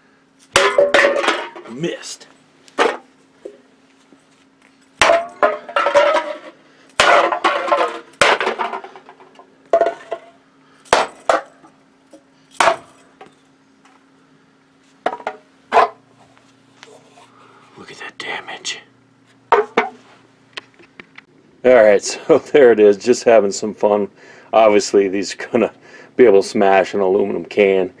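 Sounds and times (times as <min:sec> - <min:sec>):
rubber baton whacking cans: 0:05.0 - 0:09.1.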